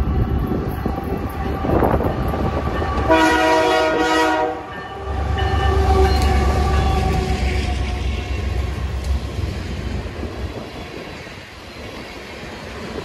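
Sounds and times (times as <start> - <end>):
locomotive rumble: 0.0 - 13.0
locomotive air horn: 0.6 - 8.6.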